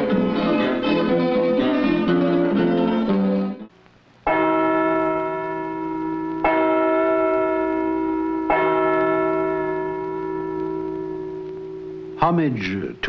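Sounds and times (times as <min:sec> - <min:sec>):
large church bell tolling: 0:04.3 - 0:12.8.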